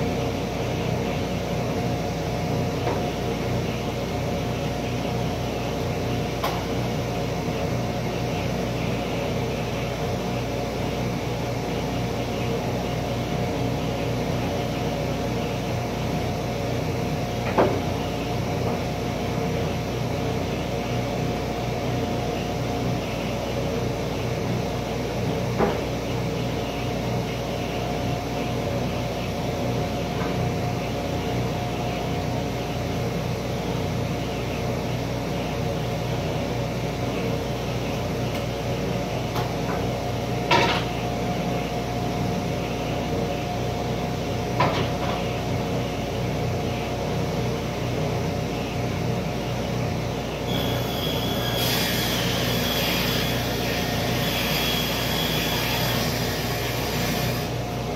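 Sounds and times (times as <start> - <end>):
saw blade cutting board: 50.5 - 57.6
table saw motor hum: 50.5 - 57.7.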